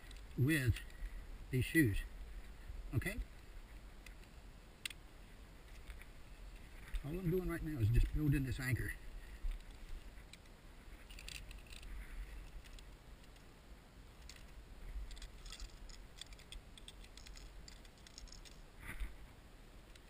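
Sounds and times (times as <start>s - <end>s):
climbing hardware clinking: 11.0s - 13.4s, 14.2s - 18.6s.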